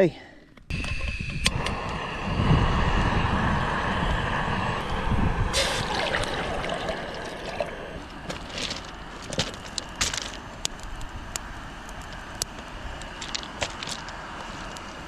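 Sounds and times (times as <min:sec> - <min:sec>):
brief hiss: 0:05.5 - 0:06.1
water trickling and gurgling: 0:05.6 - 0:09.0.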